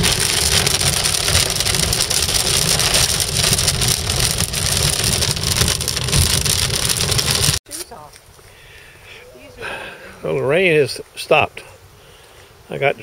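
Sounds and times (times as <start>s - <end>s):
heavy rain on car roof: 0.0s - 7.6s
road and engine rumble: 0.0s - 13.0s.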